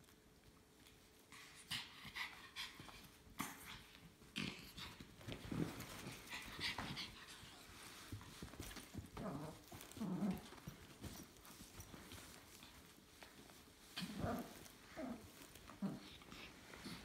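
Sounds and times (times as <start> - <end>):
dogs panting: 1.4 - 13.3.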